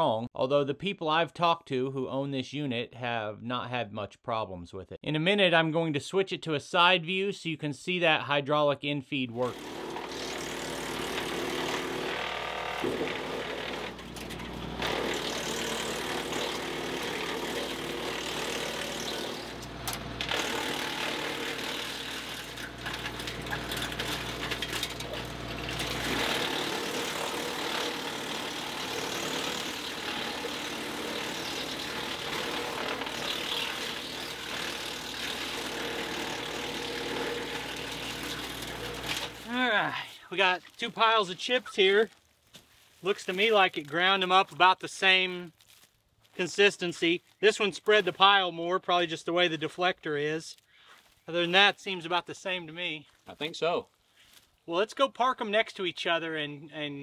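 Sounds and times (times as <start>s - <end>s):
wood chipper chipping branches: 9.4s - 42.2s
tractor engine drone: 9.6s - 34.1s.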